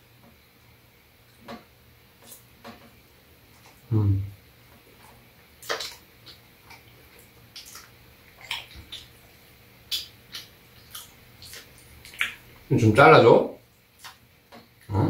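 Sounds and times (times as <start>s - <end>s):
open-mouthed chewing: 4.9s - 12.7s, 14.0s - 15.0s.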